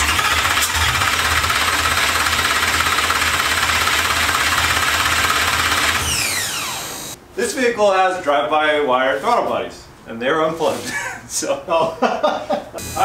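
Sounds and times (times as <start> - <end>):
starter motor cranking engine: 0.0 - 7.2.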